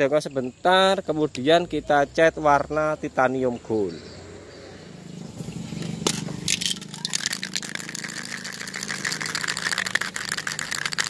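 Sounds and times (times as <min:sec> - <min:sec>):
spray can ball rattling: 0:05.8 - 0:11.0.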